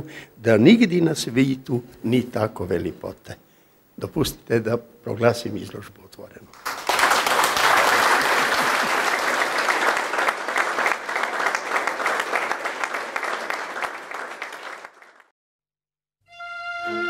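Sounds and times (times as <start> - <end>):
audience applauding: 6.5 - 15.3.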